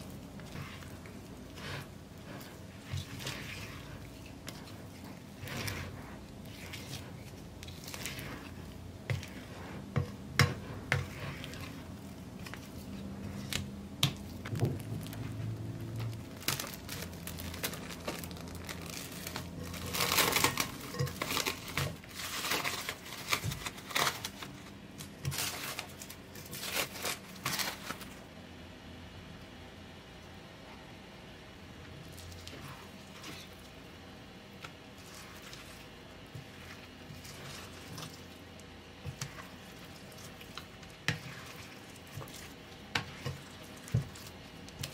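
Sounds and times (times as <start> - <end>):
spatula scraping dough in glass bowl: 0.4 - 13.5
cling film crinkling: 14.3 - 28.2.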